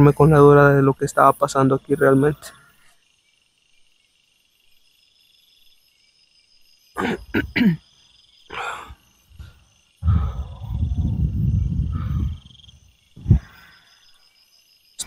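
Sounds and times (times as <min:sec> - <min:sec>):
crickets chirring: 0:00.0 - 0:15.0
loud low rumbling: 0:10.0 - 0:13.5.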